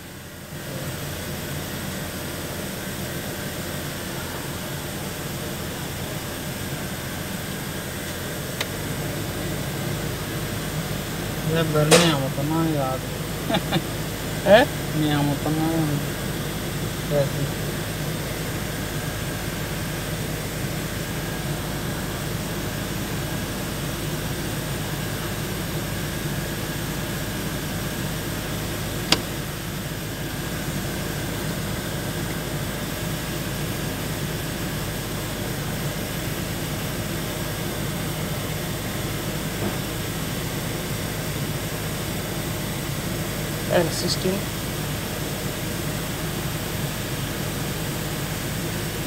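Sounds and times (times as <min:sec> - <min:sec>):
mechanical hum with high whine: 0:00.0 - 0:49.0
sharp click: 0:29.1 - 0:29.3.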